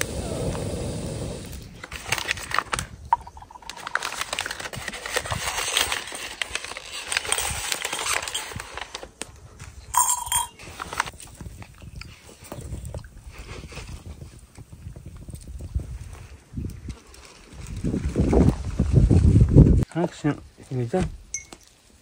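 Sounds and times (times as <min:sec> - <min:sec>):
paper and plastic rustling: 0:01.8 - 0:09.8
tea glass clinking: 0:10.0 - 0:10.6, 0:21.3 - 0:21.6.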